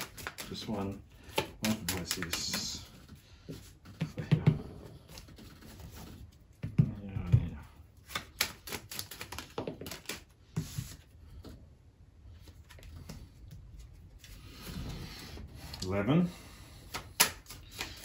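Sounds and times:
cards being shuffled: 0:00.0 - 0:04.4, 0:08.0 - 0:11.1, 0:16.9 - 0:18.0.

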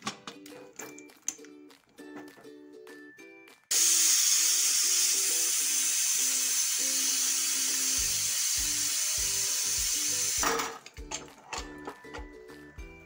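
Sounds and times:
pressure cooker steam hiss: 0:03.7 - 0:10.4.

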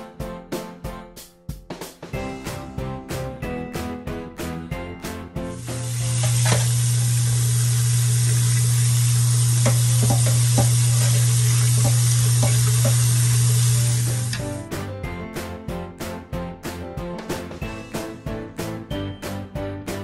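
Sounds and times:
tap water running into sink: 0:05.5 - 0:14.6.

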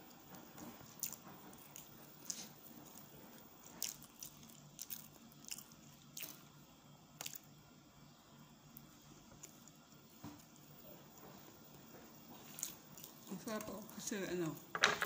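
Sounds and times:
person chewing: 0:00.8 - 0:06.6.

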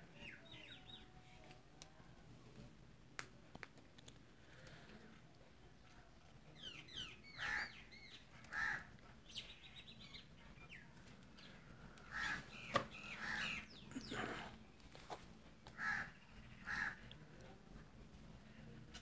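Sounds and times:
small birds chirping: 0:00.0 - 0:01.5, 0:05.9 - 0:15.0, 0:15.6 - 0:17.5
crow cawing: 0:07.4 - 0:07.8, 0:08.5 - 0:08.9, 0:12.1 - 0:12.4, 0:13.2 - 0:13.6, 0:15.8 - 0:17.0.

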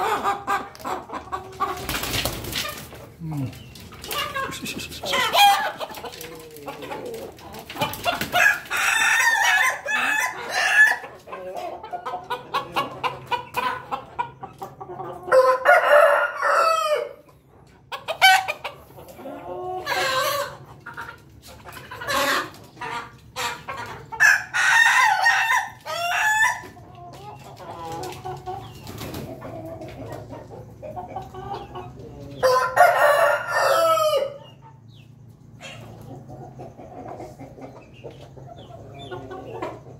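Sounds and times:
chickens clucking: 0:00.0 - 0:39.9
rooster crowing: 0:15.3 - 0:17.2, 0:32.4 - 0:34.4.

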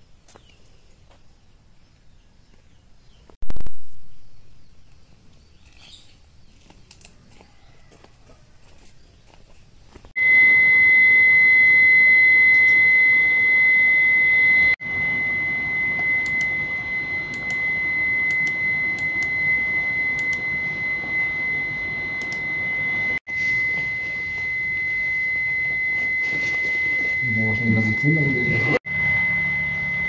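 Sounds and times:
high-pitched electronic tone: 0:10.2 - 0:30.0.

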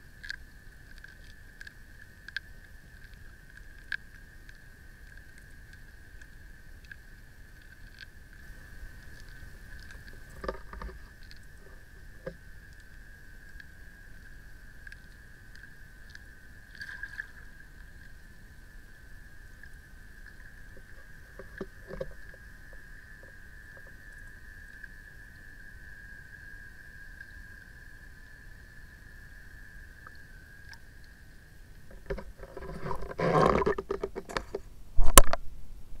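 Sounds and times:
steady thin whine: 0:00.0 - 0:36.0
low underwater rumble: 0:07.6 - 0:25.0.

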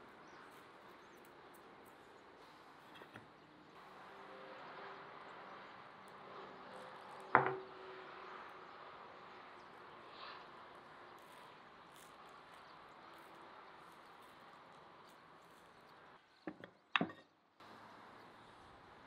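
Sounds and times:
faint background ambience: 0:00.0 - 0:19.0.

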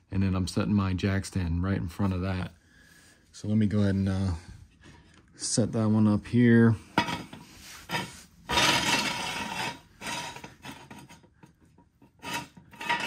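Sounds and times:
metal stand scraping on concrete: 0:06.9 - 0:13.0.

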